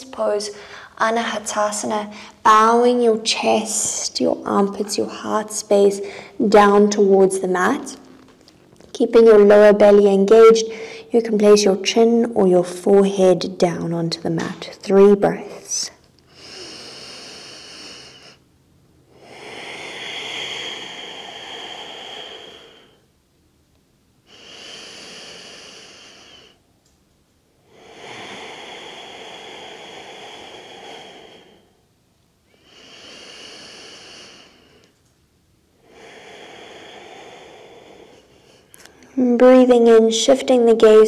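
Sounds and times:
woman breathing: 0.4s - 1.0s, 1.6s - 2.5s, 3.3s - 6.4s, 10.6s - 11.2s, 16.3s - 23.1s, 24.2s - 26.7s, 27.6s - 35.1s, 35.7s - 39.2s.

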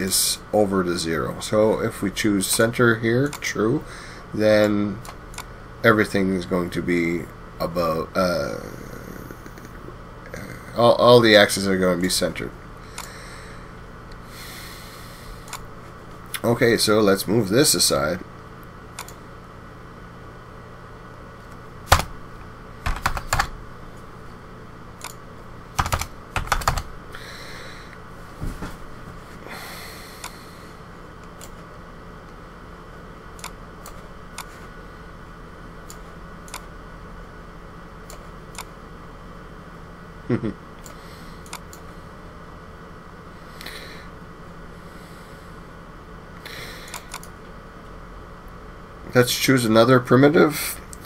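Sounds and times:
faint room hum: 0.0s - 51.0s
computer keyboard keystrokes: 21.9s - 22.1s, 22.8s - 23.5s, 25.8s - 26.9s.

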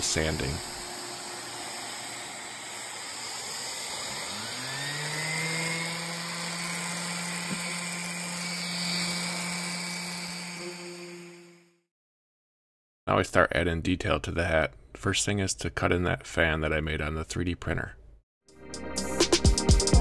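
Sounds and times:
sander motor humming: 0.0s - 11.8s.

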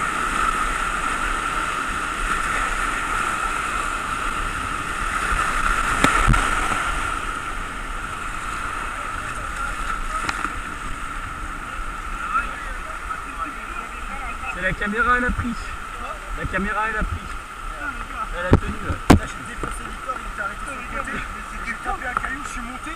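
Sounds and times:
rushing whitewater: 0.0s - 22.9s
sharp knocks on kayak: 5.9s - 6.8s.

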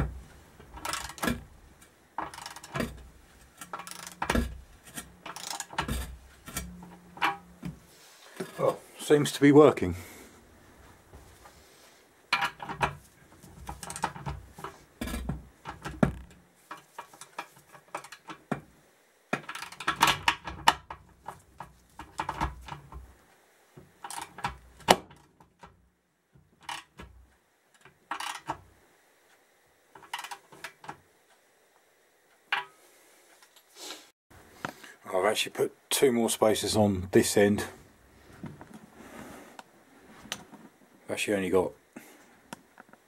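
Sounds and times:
steel spacers clinking: 0.6s - 7.6s
socket ratchet clicking: 3.6s - 4.4s, 5.2s - 5.8s.

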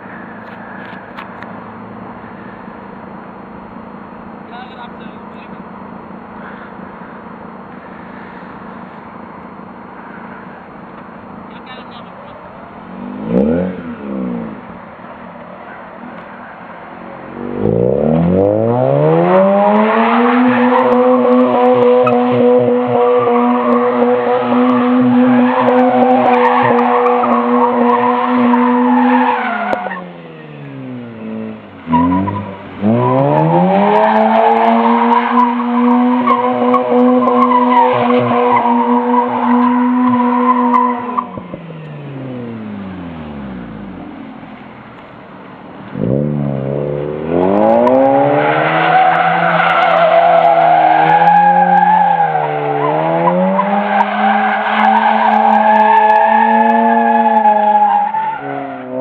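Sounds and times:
rotary engine revving: 12.9s - 14.8s, 17.2s - 44.4s, 45.9s - 59.0s.

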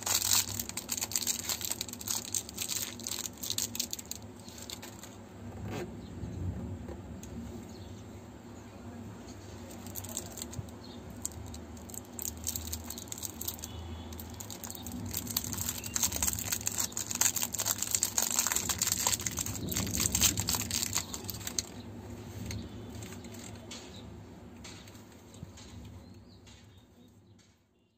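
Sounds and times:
lollipop wrapper crackling and tearing: 0.0s - 5.2s, 9.5s - 21.8s.

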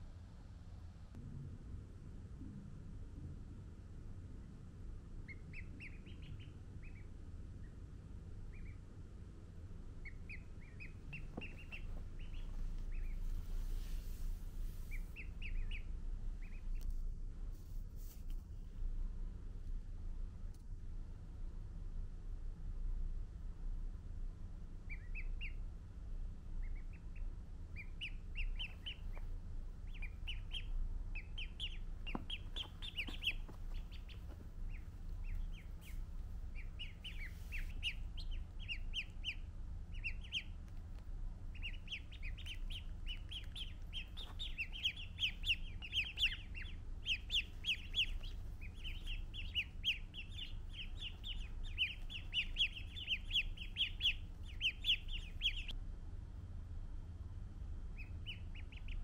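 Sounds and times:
ducklings peeping: 5.1s - 16.9s, 24.6s - 55.8s, 57.9s - 59.0s.

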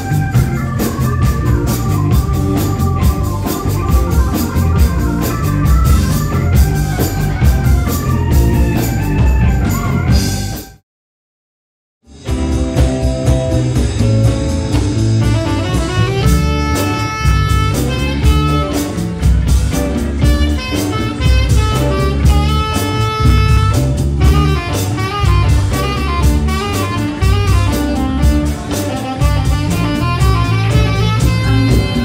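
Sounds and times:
drum kit beat: 0.0s - 10.8s, 12.0s - 32.0s
electric bass: 0.0s - 10.8s, 12.0s - 32.0s
electric guitar: 0.0s - 10.8s, 12.1s - 32.0s
keyboard: 0.0s - 10.8s, 12.1s - 32.0s
saxophone held notes: 13.9s - 32.0s.

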